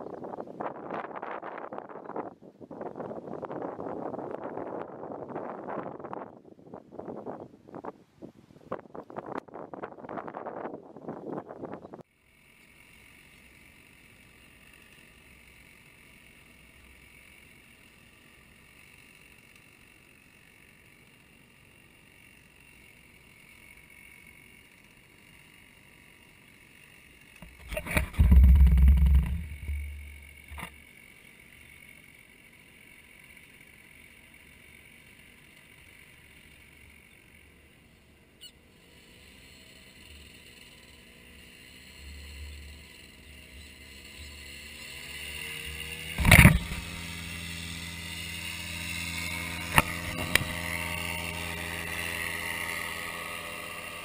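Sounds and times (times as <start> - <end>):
paramotor engine and propeller: 0.0 - 8.0, 8.7 - 54.0
loud low rumble: 27.6 - 30.7
sharp knock: 27.6 - 30.7.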